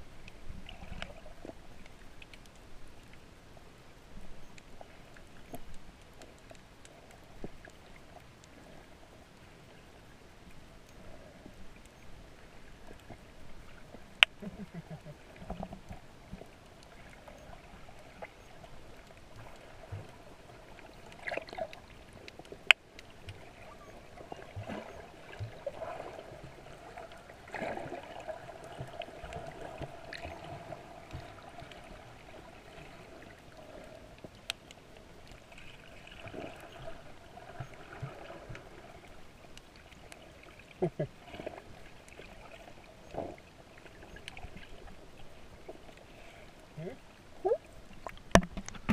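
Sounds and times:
low underwater hum: 0:00.0 - 0:48.9
soft gurgles: 0:10.9 - 0:34.4, 0:35.2 - 0:48.9.

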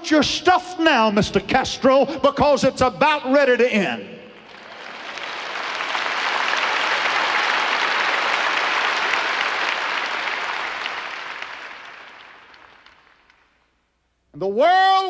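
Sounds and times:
large audience applauding: 0:04.4 - 0:13.6.

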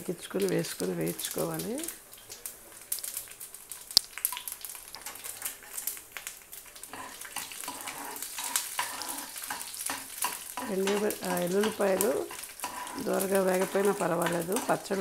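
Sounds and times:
spices frying in oil: 0:00.0 - 0:15.0
spoon stirring and scraping pan: 0:04.2 - 0:15.0.

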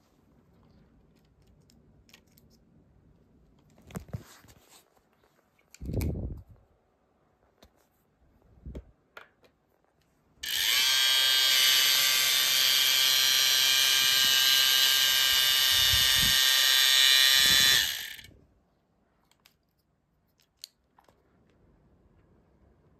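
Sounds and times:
small electric motors whining: 0:10.4 - 0:18.3.

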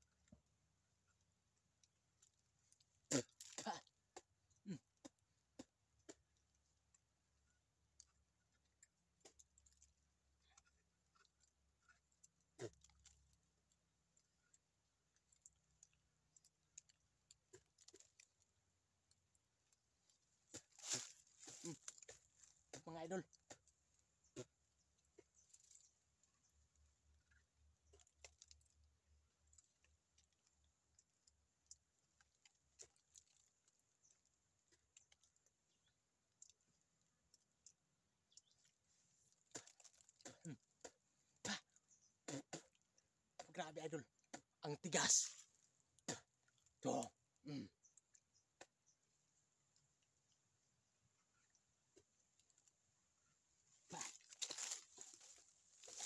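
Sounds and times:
teeth tearing at bark: 0:08.0 - 0:26.2, 0:27.2 - 0:43.5.

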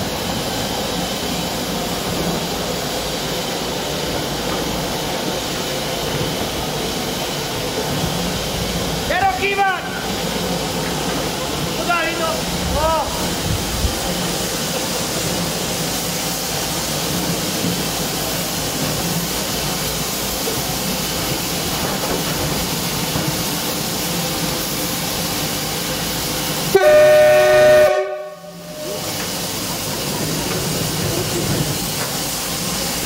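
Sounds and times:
steam hissing: 0:00.0 - 0:33.0
locomotive whistle blast: 0:26.7 - 0:29.1.

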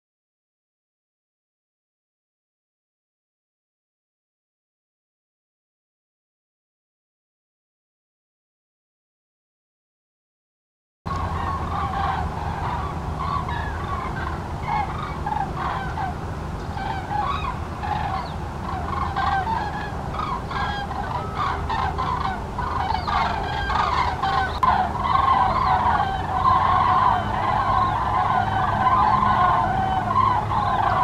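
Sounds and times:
cranes calling: 0:11.1 - 0:31.0.

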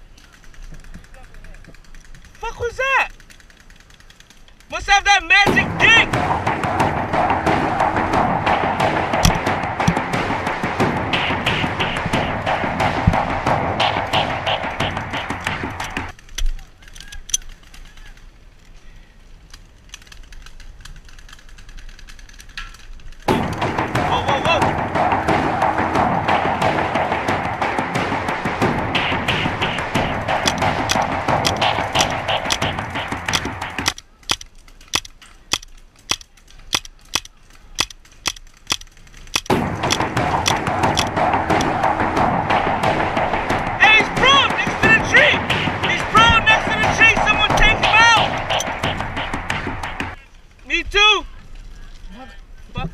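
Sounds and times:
dense loud sound: 0:05.3 - 0:16.2, 0:23.3 - 0:34.0, 0:39.4 - 0:50.2
paintball markers firing: 0:05.4 - 0:18.1, 0:22.4 - 0:50.2
background music: 0:05.5 - 0:16.1, 0:23.3 - 0:34.0, 0:39.4 - 0:50.2
dull thump: 0:05.5 - 0:16.1, 0:23.3 - 0:34.0.

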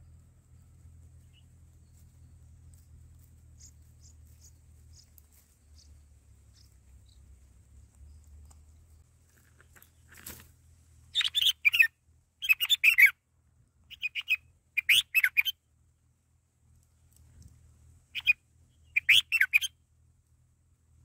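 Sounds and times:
bulbuls chirping: 0:00.0 - 0:13.2, 0:13.8 - 0:15.6, 0:18.1 - 0:19.8.

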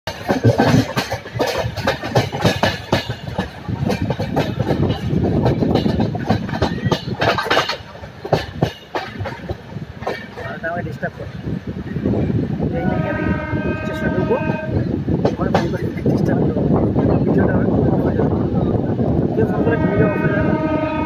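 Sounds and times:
train rumble: 0:00.0 - 0:21.0
wheels clattering over rail joints: 0:00.1 - 0:11.5, 0:15.1 - 0:16.7.

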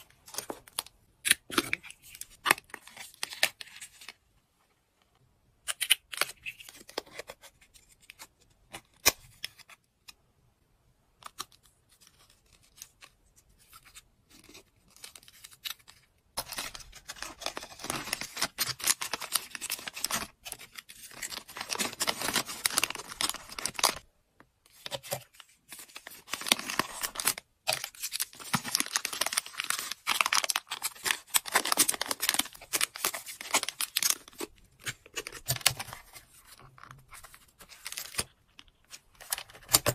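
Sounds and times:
plastic bags crinkling: 0:16.4 - 0:24.0, 0:25.8 - 0:36.2.

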